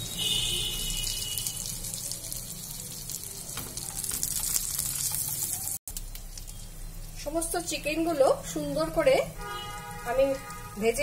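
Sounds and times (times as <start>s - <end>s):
chicken sizzling in frying pan: 0.0s - 11.0s.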